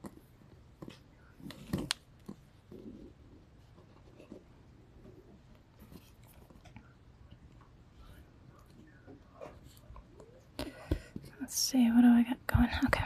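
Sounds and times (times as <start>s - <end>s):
cord rustling and handling: 0.0s - 6.9s.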